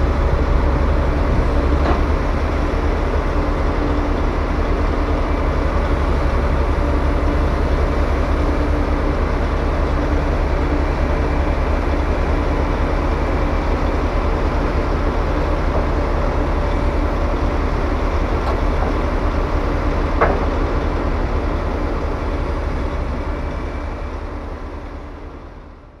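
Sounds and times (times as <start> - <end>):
wood chipper diesel engine: 0.0 - 26.0.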